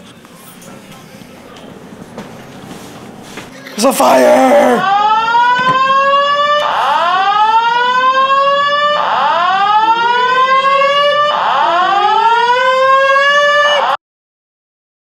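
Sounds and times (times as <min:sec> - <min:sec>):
fire alarm horn whooping: 0:02.9 - 0:14.0.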